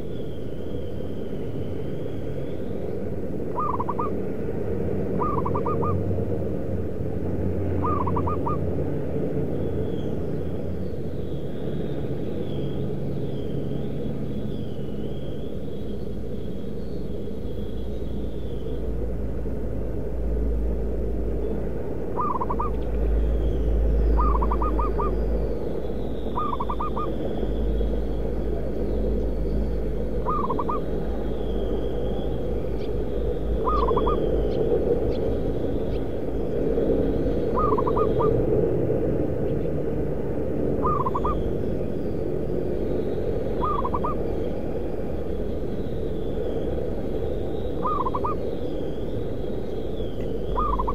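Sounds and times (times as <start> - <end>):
steady low rumble: 0.0 - 50.9
dove cooing: 3.5 - 4.2, 5.2 - 6.0, 7.8 - 8.7, 22.2 - 22.8, 24.2 - 25.2, 26.3 - 27.2, 30.2 - 36.1, 37.4 - 38.5, 40.8 - 41.6, 43.5 - 44.6, 47.8 - 48.5, 50.5 - 50.9.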